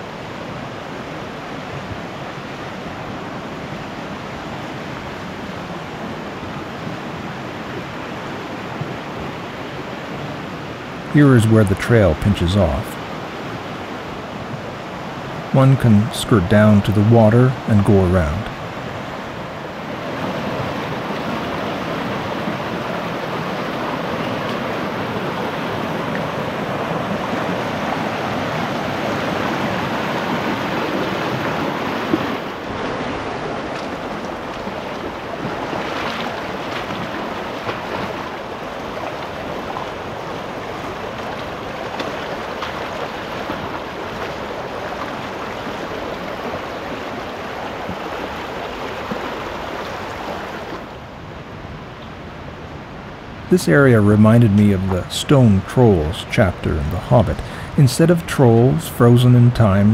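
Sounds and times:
creek rushing over stones: 0.0 - 59.9.

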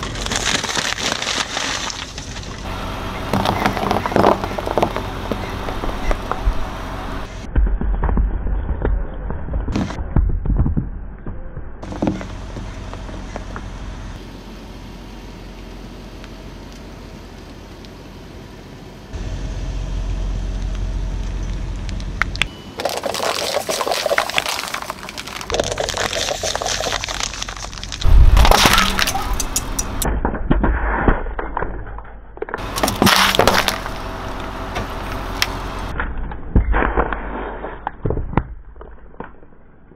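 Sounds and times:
plastic cups cracking and crunching: 0.0 - 2.7, 3.3 - 6.4, 22.0 - 30.1, 32.5 - 34.0
chalky block crumbling: 0.0 - 6.4, 22.8 - 29.4, 32.6 - 34.0
car tyre crushing objects: 0.0 - 14.2, 20.5 - 39.9
ice pop squashing and squirting: 22.8 - 30.0.

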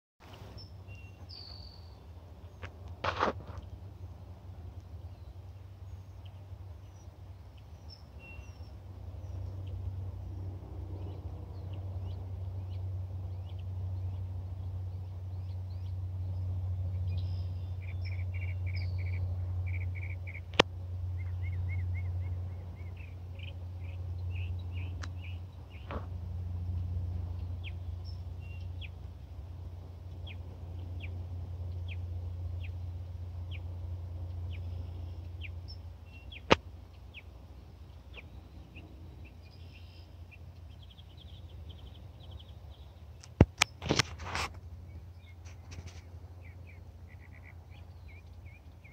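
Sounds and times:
small birds chirping: 0.2 - 48.9
steady low rumble: 0.2 - 48.9
sharp click: 43.2 - 44.5.

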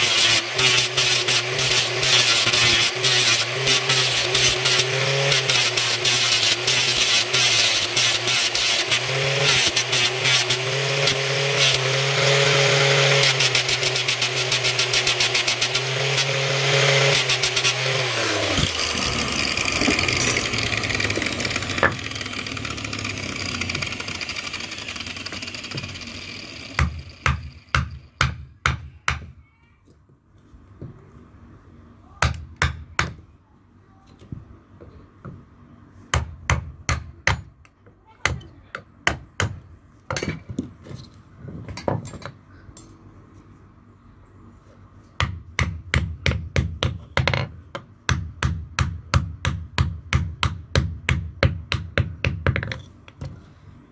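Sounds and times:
angle grinder sanding wood: 0.0 - 27.6.

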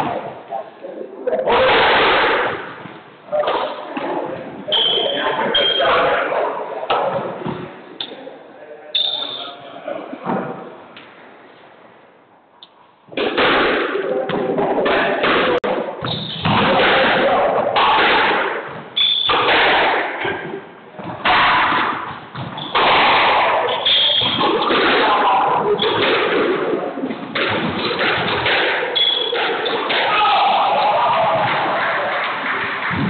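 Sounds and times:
squash ball smacking rackets and walls: 13.1 - 31.7
shoes squeaking on hardwood floor: 29.0 - 29.5.

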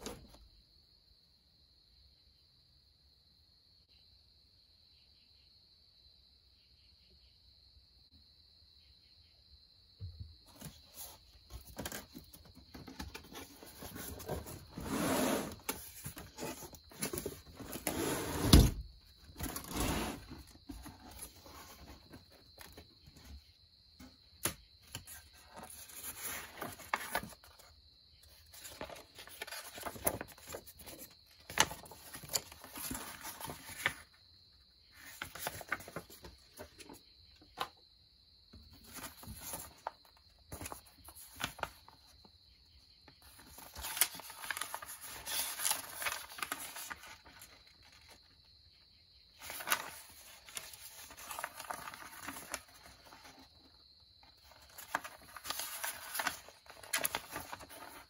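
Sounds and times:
paper and cardboard rustling: 10.5 - 23.4, 24.4 - 34.1, 34.9 - 37.0, 38.6 - 42.0, 43.2 - 48.2, 49.4 - 58.0
pages turning: 10.6 - 18.4, 24.4 - 27.7, 28.3 - 34.1, 35.0 - 37.0, 38.8 - 42.0, 43.2 - 48.2, 49.4 - 53.5, 54.4 - 58.0.

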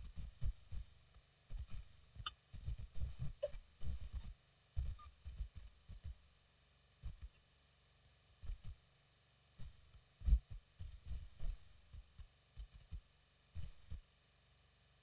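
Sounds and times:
faint steady hiss: 0.0 - 15.0
soft low thumps: 9.6 - 12.2.

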